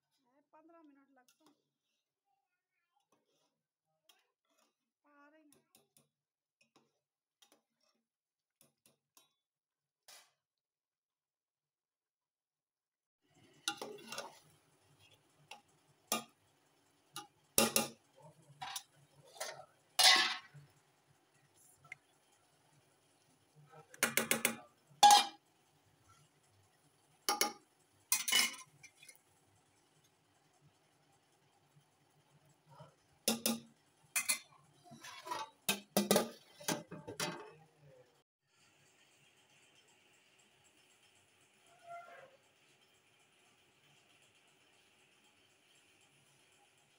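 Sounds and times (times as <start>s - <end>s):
metal spoon scraping cooking pot: 13.6s - 16.4s, 18.6s - 20.8s, 23.9s - 25.4s, 27.3s - 29.2s, 34.2s - 37.6s.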